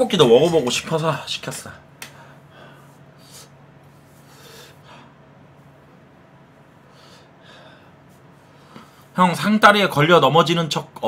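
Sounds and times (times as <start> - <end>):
low electrical hum: 0.0 - 11.0
man breathing and sniffing: 2.1 - 5.2.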